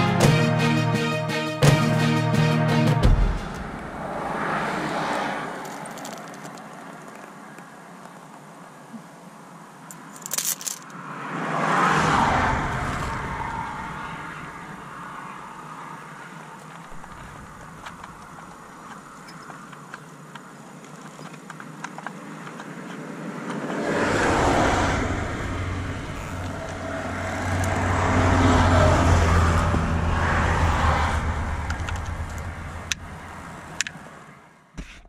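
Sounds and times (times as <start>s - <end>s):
road traffic passing: 0.0s - 34.8s.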